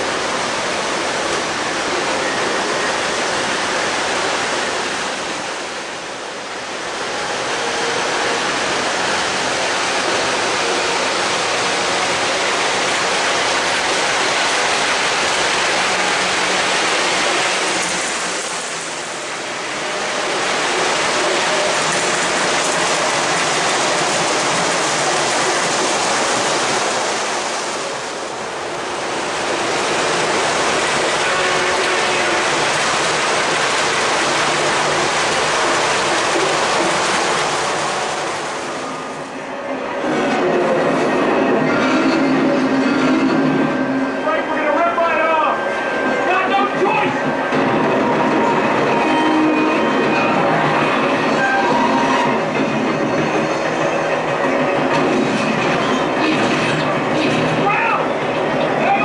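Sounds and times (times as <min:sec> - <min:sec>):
model train wheels and motors rushing: 0:00.0 - 0:39.3.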